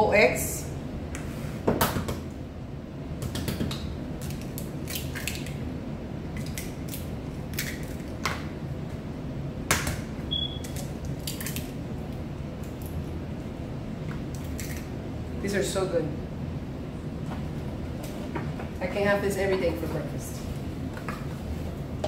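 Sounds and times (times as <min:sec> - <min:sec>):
low steady hum: 0:00.0 - 0:22.0
eggs cracking on a bowl: 0:03.2 - 0:05.6, 0:06.3 - 0:08.5, 0:09.7 - 0:13.0, 0:14.0 - 0:14.9.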